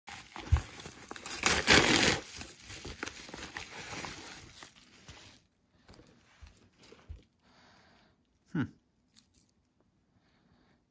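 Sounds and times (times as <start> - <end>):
padded mailer ripping open: 0.1 - 5.1
paper crinkling and rustling: 0.1 - 7.3.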